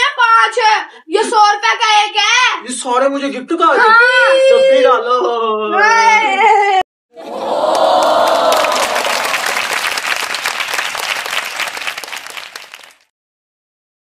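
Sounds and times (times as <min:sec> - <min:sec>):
crowd cheering: 0:07.2 - 0:13.1
hands clapping: 0:07.5 - 0:13.1.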